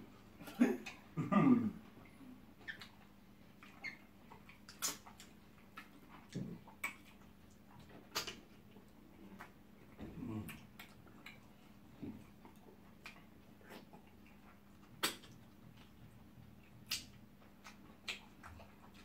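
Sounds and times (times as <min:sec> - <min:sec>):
low murmurs: 0:00.4 - 0:02.4
mouth smacks while eating: 0:02.0 - 0:19.0.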